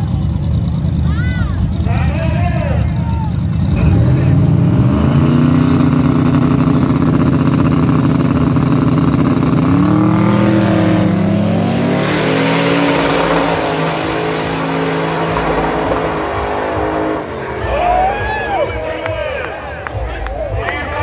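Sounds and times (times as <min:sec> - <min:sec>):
drag car engine revving: 0:00.0 - 0:20.0
broad rushing noise: 0:09.6 - 0:19.0.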